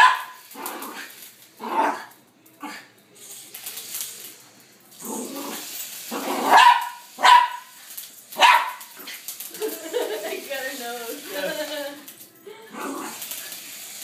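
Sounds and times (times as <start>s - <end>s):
small dog barking: 0.0s - 0.4s, 6.2s - 7.7s, 8.4s - 9.0s.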